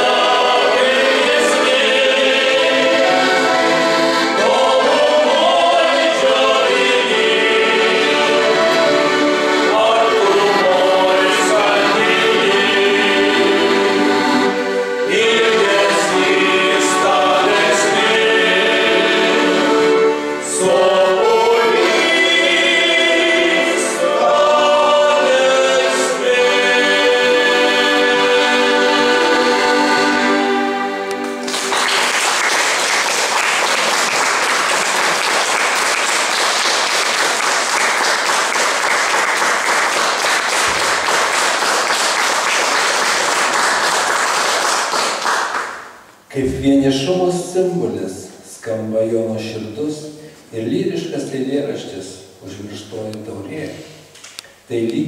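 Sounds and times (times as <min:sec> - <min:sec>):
men's ensemble singing in harmony: 0:00.0 - 0:31.5
audience applauding: 0:31.2 - 0:46.0.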